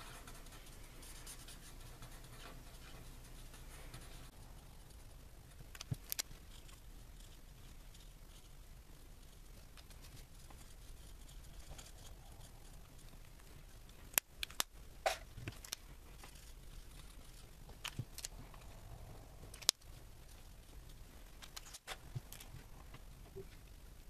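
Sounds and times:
soft room noise: 0.0 - 24.0
plastic markers clicking and tapping: 5.7 - 6.7, 14.0 - 16.4.

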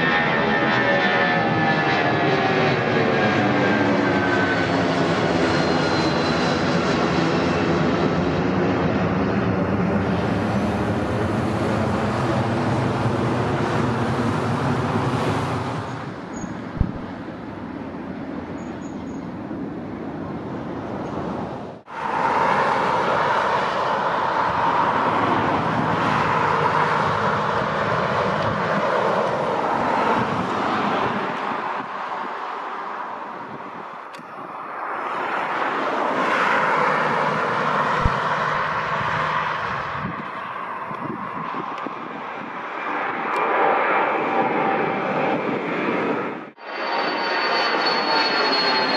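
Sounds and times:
jet engine roar with whine: 0.0 - 48.9
jet engines climbing overhead: 0.0 - 48.9.

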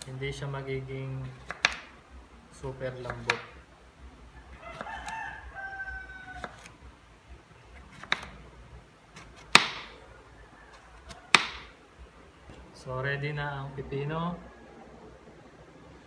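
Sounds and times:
rooster crowing: 4.3 - 6.8, 10.1 - 11.8.

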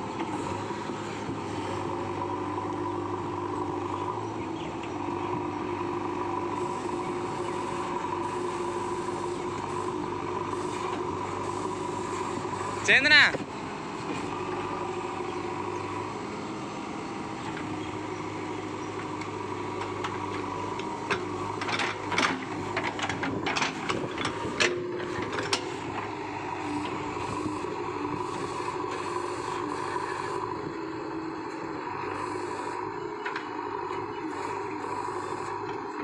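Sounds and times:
diesel engine running under load: 0.0 - 36.0.

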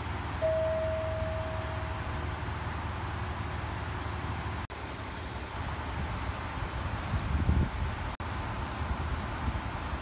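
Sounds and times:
diesel engine idling: 0.0 - 7.1
steady high tone: 0.4 - 2.2.

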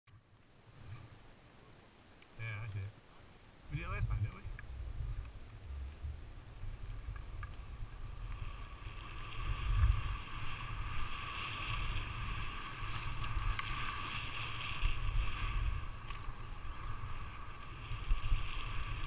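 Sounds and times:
skis gliding over snow: 2.3 - 19.0
wind buffeting microphone: 3.7 - 19.0.

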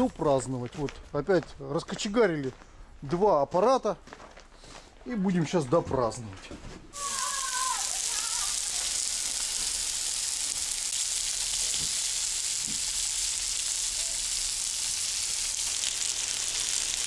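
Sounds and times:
fish fillets sizzling on griddle: 7.0 - 17.0.

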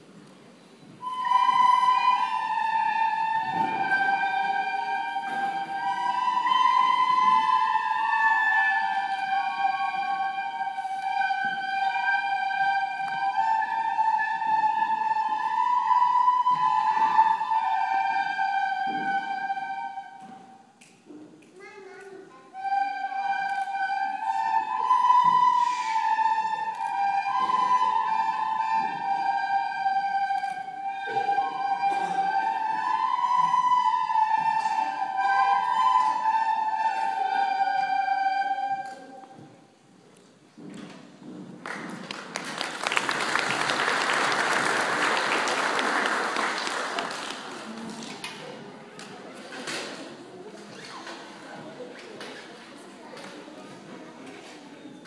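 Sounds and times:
children playing recorders: 0.8 - 20.9, 22.0 - 39.6, 42.4 - 50.1
audience applauding: 41.6 - 48.1.

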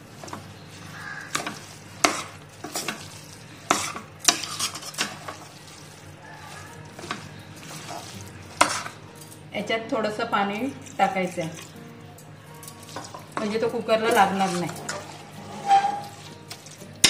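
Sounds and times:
metal spoon scraping pot: 0.2 - 9.0, 12.7 - 16.8.

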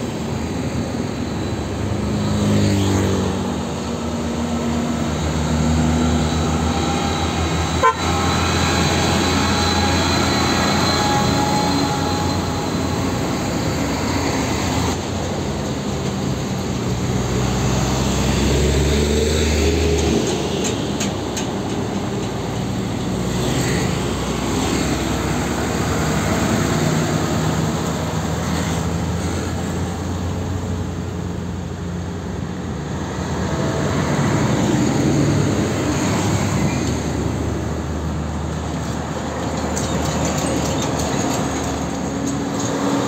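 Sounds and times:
diesel trucks passing: 0.0 - 43.0.

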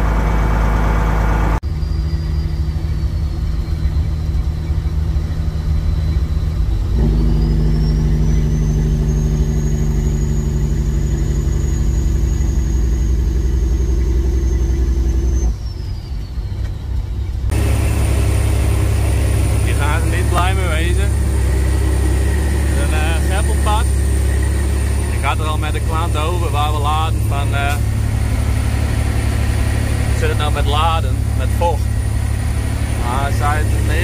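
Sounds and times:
diesel truck engine: 0.0 - 34.0
thin high whine: 17.5 - 34.0.

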